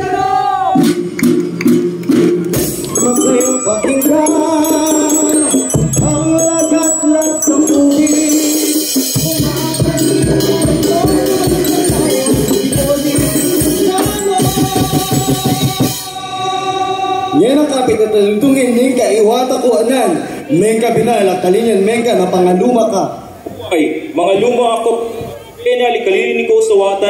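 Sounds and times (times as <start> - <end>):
ringing gong tones: 2.9 - 14.7
quick steady drum beat: 8.0 - 16.0.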